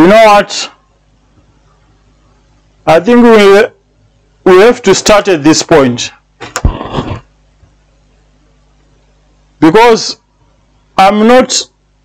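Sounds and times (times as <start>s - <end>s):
low electrical hum: 0.0s - 12.0s
person speaking: 4.5s - 7.2s.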